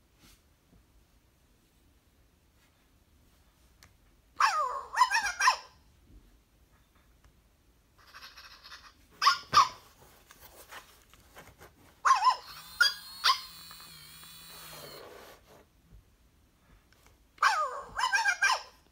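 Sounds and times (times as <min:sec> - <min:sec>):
toy puppy whimper: 0:04.4 - 0:05.7, 0:08.0 - 0:09.6, 0:12.1 - 0:15.2, 0:17.4 - 0:18.8
toy puppy yips: 0:04.4 - 0:05.8, 0:08.0 - 0:09.9, 0:12.0 - 0:15.0, 0:17.4 - 0:18.9
toy motor whir: 0:12.2 - 0:15.4.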